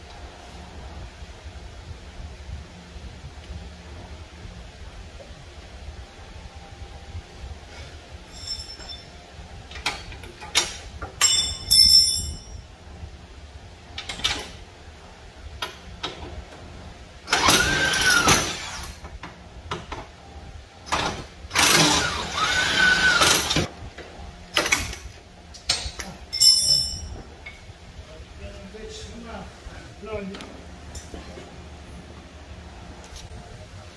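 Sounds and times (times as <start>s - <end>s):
metal tools clinking: 8.3s - 9.2s, 11.2s - 12.6s, 25.7s - 27.6s
impact wrench running: 17.3s - 19.0s, 21.0s - 23.7s.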